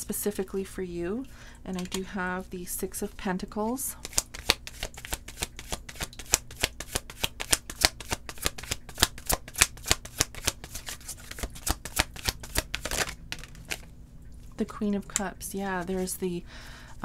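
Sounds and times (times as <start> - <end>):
cards being shuffled: 4.0 - 13.9.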